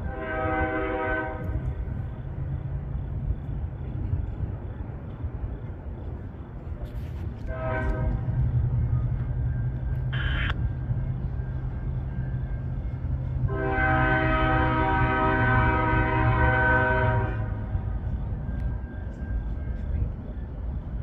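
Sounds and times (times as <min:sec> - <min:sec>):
locomotive air horn blasts: 0:00.0 - 0:01.6, 0:07.4 - 0:08.3, 0:13.5 - 0:17.6
diesel locomotive rumble: 0:00.0 - 0:21.0.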